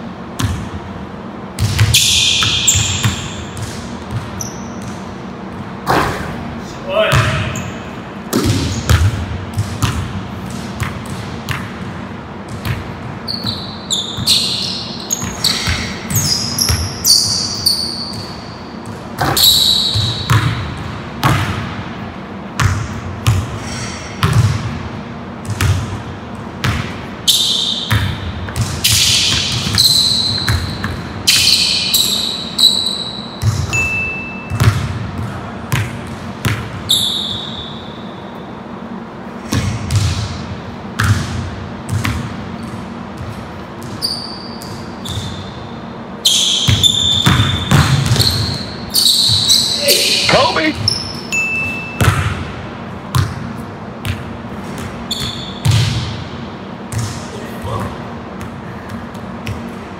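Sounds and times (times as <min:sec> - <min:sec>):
basketball bouncing on hardwood floor: 0:01.6 - 0:05.0, 0:08.3 - 0:13.6, 0:18.1 - 0:21.6, 0:22.6 - 0:23.5, 0:24.2 - 0:24.7, 0:25.4 - 0:26.9, 0:39.5 - 0:40.3, 0:41.0 - 0:44.0, 0:46.7 - 0:48.5, 0:52.0 - 0:52.4
sneaker squeaks: 0:01.6 - 0:06.3, 0:07.1 - 0:11.6, 0:12.5 - 0:21.4, 0:26.6 - 0:35.4, 0:36.8 - 0:38.8, 0:41.9 - 0:52.5, 0:54.1 - 0:56.0.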